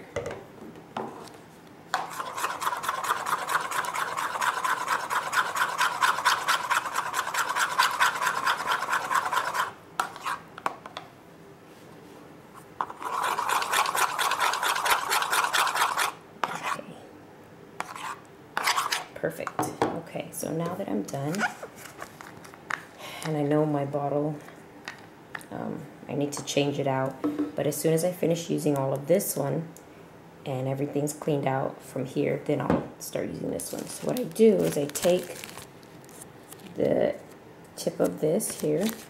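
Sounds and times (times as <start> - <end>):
metal spoon scraping plastic bowl: 2.0 - 10.4, 12.8 - 16.8, 17.8 - 19.1.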